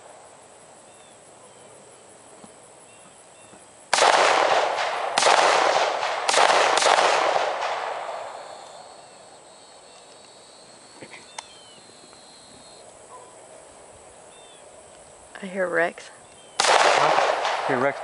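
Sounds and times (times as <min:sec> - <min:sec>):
gunshots with long echo: 0:03.9 - 0:09.2, 0:16.6 - 0:18.0.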